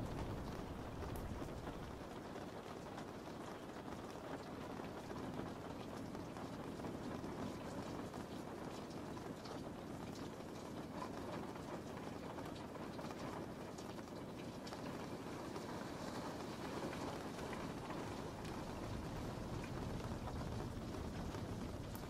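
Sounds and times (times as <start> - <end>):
raindrop taps: 0.0 - 2.0, 13.8 - 22.0
steady rain hiss: 0.0 - 22.0.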